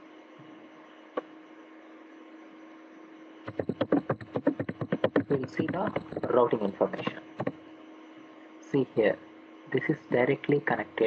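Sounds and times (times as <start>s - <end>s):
low electrical hum: 0.0s - 11.0s
keyboard typing: 3.5s - 7.5s.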